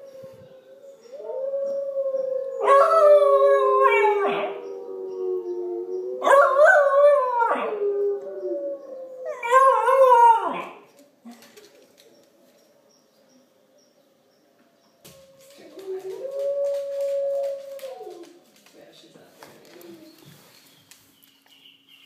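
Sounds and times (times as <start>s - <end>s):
recorded wolf howls: 0.0s - 10.8s, 15.1s - 18.4s
puppy howling: 15.2s - 18.3s.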